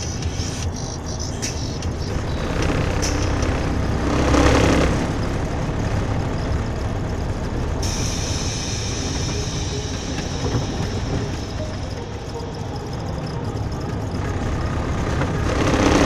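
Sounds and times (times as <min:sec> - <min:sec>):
road and engine noise in cab: 0:00.0 - 0:16.0
bright hiss: 0:07.8 - 0:11.9.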